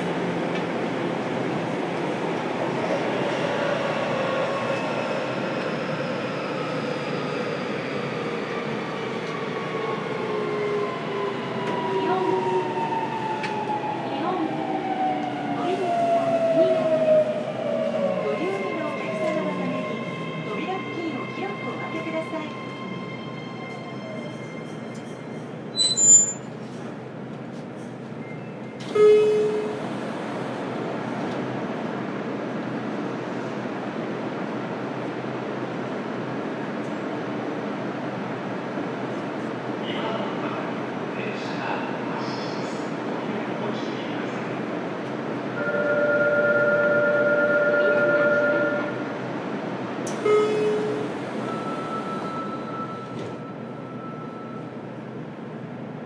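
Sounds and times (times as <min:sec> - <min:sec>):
train horn toot: 0:28.9 - 0:29.8, 0:50.2 - 0:51.1.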